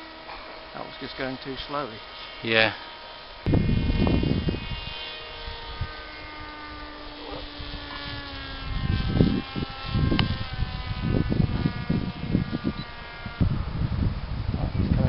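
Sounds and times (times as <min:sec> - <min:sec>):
model aircraft motor whine: 0:00.0 - 0:15.0
wind buffeting microphone: 0:03.5 - 0:15.0.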